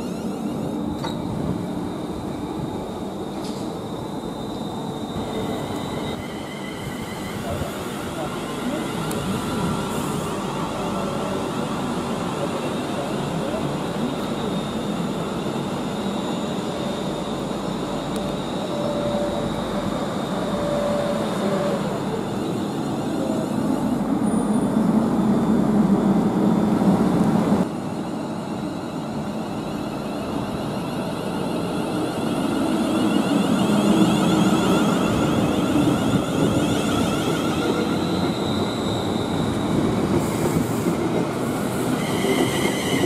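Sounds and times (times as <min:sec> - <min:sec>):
train wheels rumbling on rails: 0:00.0 - 0:27.9, 0:28.7 - 0:43.0.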